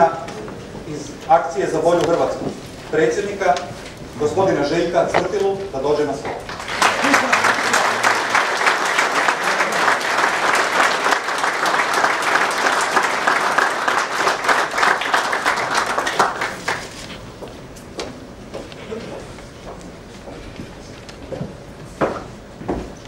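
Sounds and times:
audience applauding: 6.3s - 17.0s.

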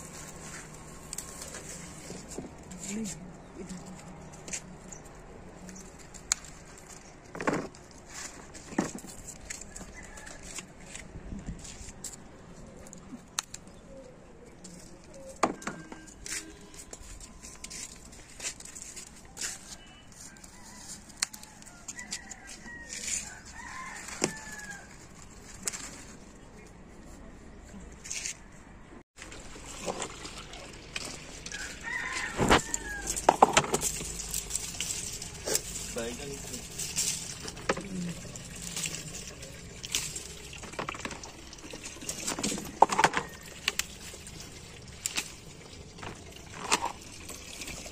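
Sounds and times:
rustling among vines: 0.0s - 13.3s, 16.1s - 28.6s, 29.2s - 47.9s
clicks and snaps of tomatoes picked: 5.6s - 6.7s.

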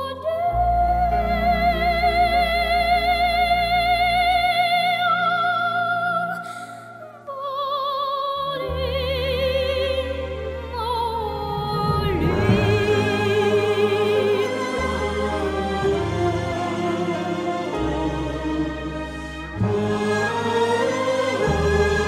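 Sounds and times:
instrumental accompaniment: 8.7s - 22.0s.

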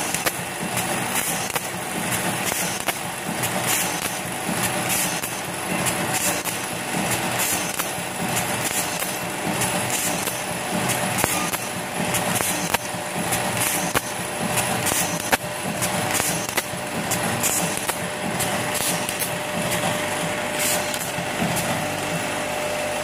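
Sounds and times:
bowl feeder rattling and buzzing: 0.0s - 22.9s.

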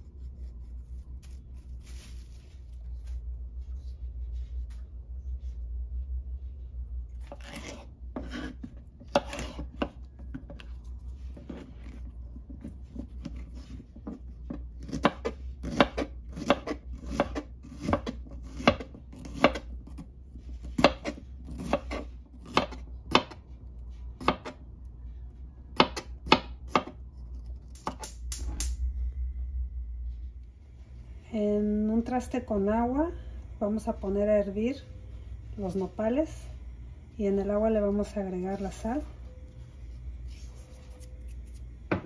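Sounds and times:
low steady hum: 0.0s - 42.0s
knife chopping on plastic board: 7.4s - 10.6s, 14.0s - 20.0s, 20.6s - 23.4s, 24.2s - 24.6s, 25.8s - 27.0s.

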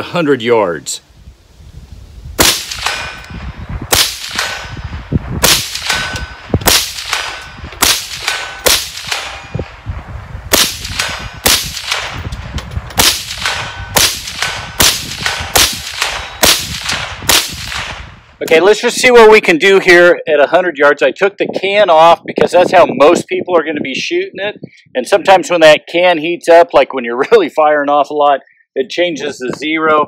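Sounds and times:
rifle shots: 2.4s - 3.3s, 3.9s - 4.8s, 5.4s - 9.5s, 10.5s - 12.3s, 13.0s - 18.1s.

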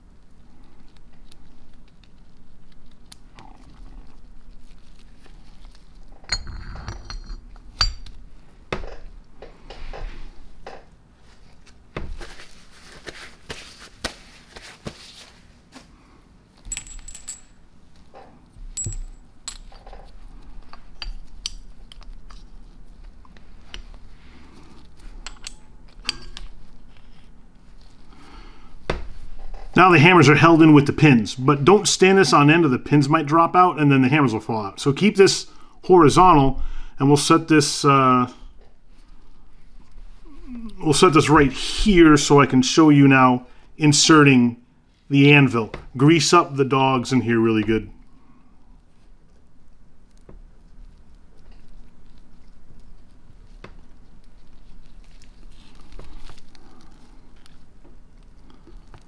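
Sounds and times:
light metallic clinks and knocks: 6.1s - 8.2s, 16.6s - 17.6s, 18.6s - 20.1s.

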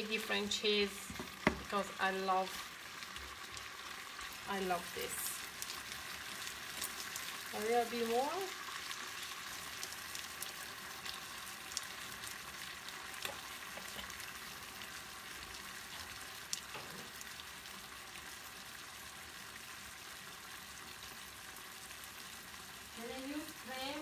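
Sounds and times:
sauce sizzling in a frying pan: 0.0s - 24.0s.

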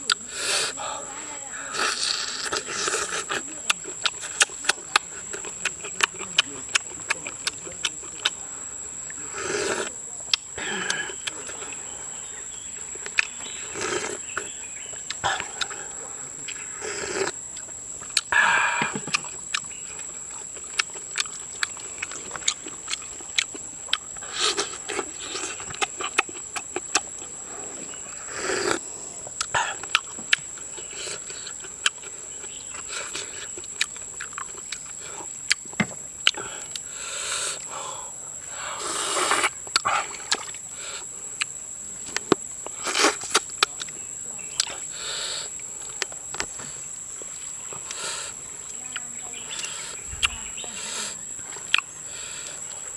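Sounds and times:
high insect drone: 0.0s - 52.9s
slurping hot soup: 1.7s - 3.4s, 9.2s - 10.0s, 13.6s - 14.5s, 16.5s - 17.4s, 24.2s - 25.9s, 27.7s - 28.9s, 36.4s - 41.1s, 42.7s - 43.4s.

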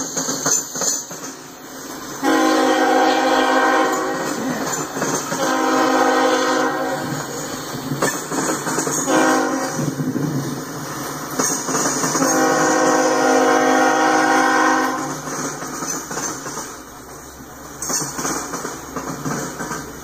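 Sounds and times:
train wheels clattering on rails: 0.0s - 20.0s
train horn blasts: 2.2s - 7.4s, 9.0s - 10.0s, 12.2s - 15.2s.

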